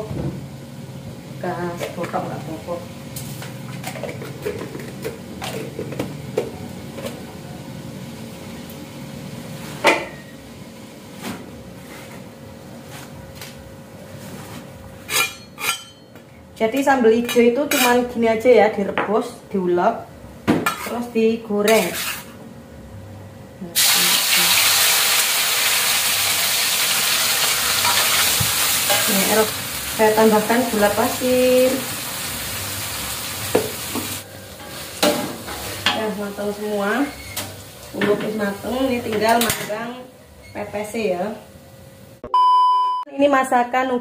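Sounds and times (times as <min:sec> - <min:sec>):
chili paste sizzling in hot oil: 0:23.8 - 0:39.0.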